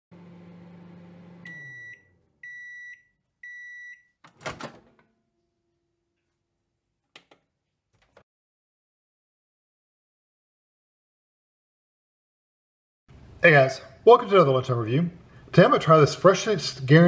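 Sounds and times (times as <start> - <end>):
microwave oven hum: 0.1 - 6.0
microwave long beeps: 0.3 - 4.2.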